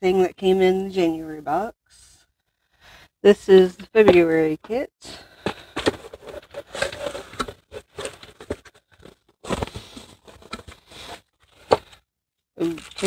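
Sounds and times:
cardboard box scraping and tapping: 0:05.4 - 0:12.0
paper filler crinkling: 0:05.6 - 0:12.0, 0:12.6 - 0:13.0.

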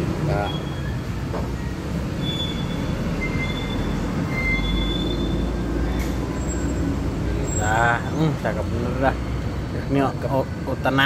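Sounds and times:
road traffic rumble: 0:00.0 - 0:11.0
high-pitched squeals: 0:00.4 - 0:07.8.

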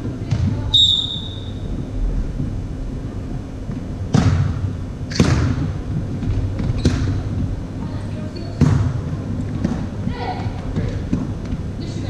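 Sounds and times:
volleyball smacks echoing in gym: 0:04.1 - 0:07.4, 0:08.5 - 0:11.6.

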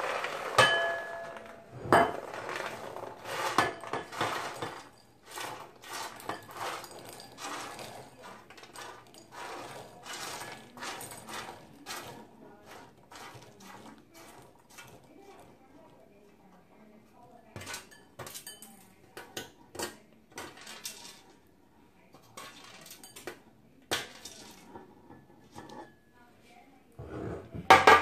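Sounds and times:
baking sheet clanking: 0:00.0 - 0:15.0, 0:27.0 - 0:28.0
chickpeas rattling on metal sheet: 0:00.0 - 0:15.5, 0:19.7 - 0:21.4, 0:22.2 - 0:23.2, 0:23.9 - 0:24.7.

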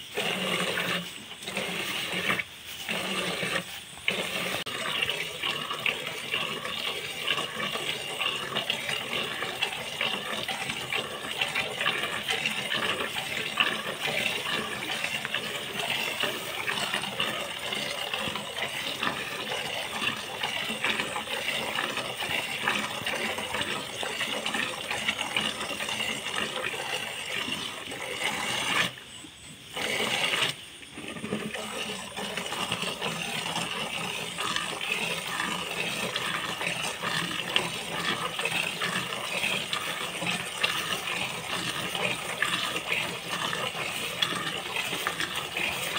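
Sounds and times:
milk squirting into bucket: 0:00.0 - 0:29.1, 0:29.7 - 0:45.9.

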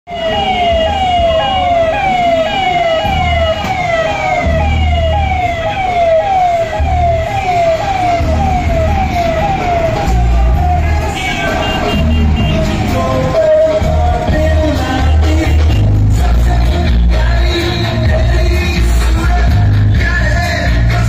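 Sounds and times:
police siren wailing: 0:00.1 - 0:15.2
low rumble of vehicle engines: 0:00.1 - 0:21.0.

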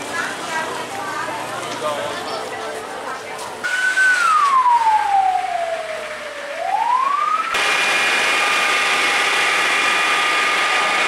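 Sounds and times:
fire truck engine droning: 0:03.6 - 0:11.0
fire truck siren wailing: 0:03.6 - 0:11.0.

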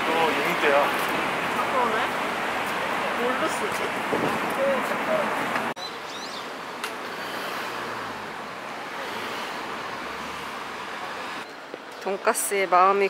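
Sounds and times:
distant road traffic hiss: 0:00.0 - 0:13.0.

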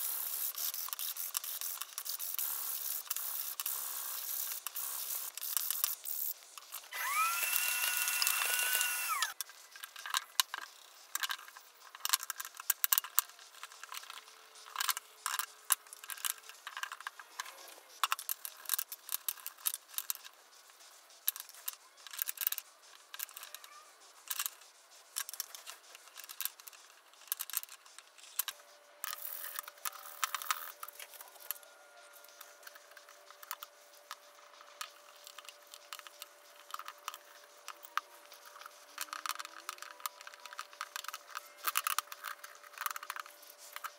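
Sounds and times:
loud whirring whine: 0:06.9 - 0:09.3.

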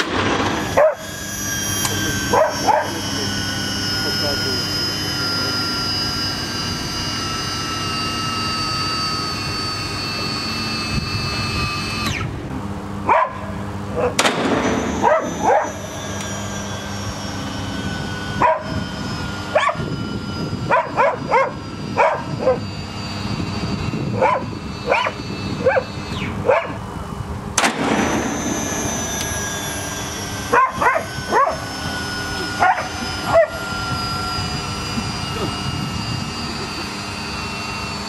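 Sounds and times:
dog barking in sharp yelps: 0:00.8 - 0:01.1, 0:02.3 - 0:02.9, 0:13.1 - 0:13.5, 0:15.0 - 0:15.8, 0:18.4 - 0:18.8, 0:19.6 - 0:19.8, 0:20.7 - 0:22.6, 0:24.2 - 0:26.8, 0:30.5 - 0:31.6, 0:32.6 - 0:33.6
sharp click with noise rush: 0:27.6 - 0:29.4.

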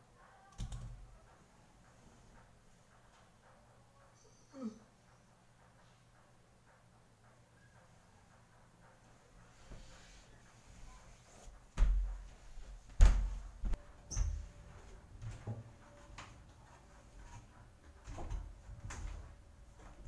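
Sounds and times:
heavy thuds and knocks: 0:11.5 - 0:13.8
footfalls on wooden ladder: 0:11.6 - 0:16.3.

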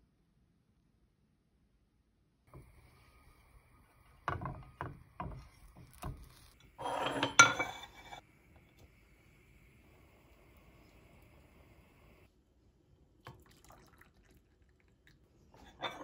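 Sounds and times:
bread scraping in frying pan: 0:02.5 - 0:08.2.

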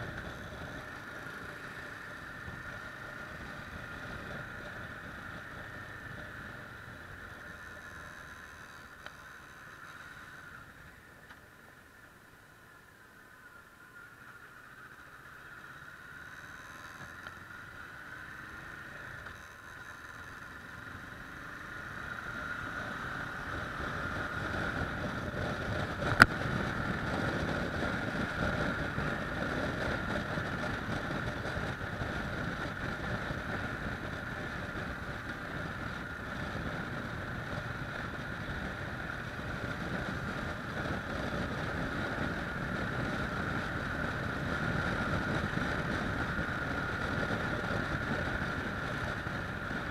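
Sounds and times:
motorcycle engine running: 0:00.0 - 0:49.9
wind noise on microphone: 0:23.5 - 0:49.9.

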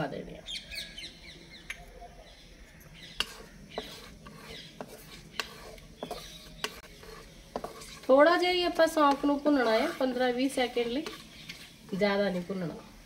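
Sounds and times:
faint sizzle: 0:01.9 - 0:13.0
wooden spatula scraping pan: 0:03.0 - 0:12.8.

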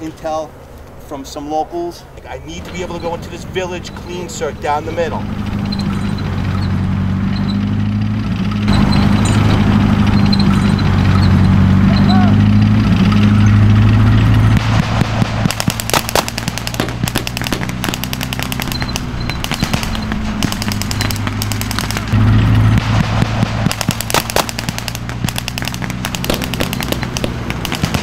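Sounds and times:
armored vehicle engines droning: 0:00.0 - 0:28.0
machine guns firing rapid bursts: 0:14.6 - 0:22.2, 0:22.8 - 0:28.0.

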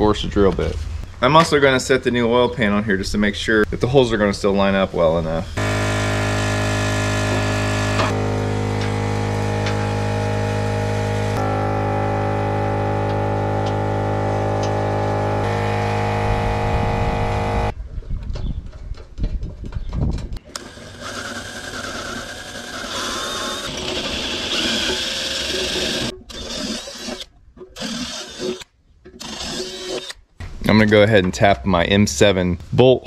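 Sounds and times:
background music chords: 0:08.0 - 0:17.7.

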